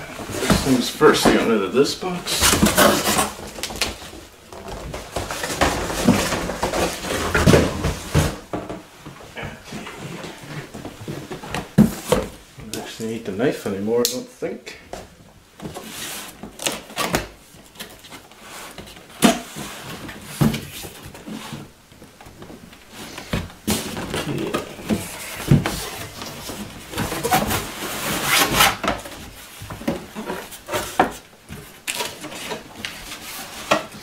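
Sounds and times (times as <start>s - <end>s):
papery rustling and scraping: 22.4s - 34.0s.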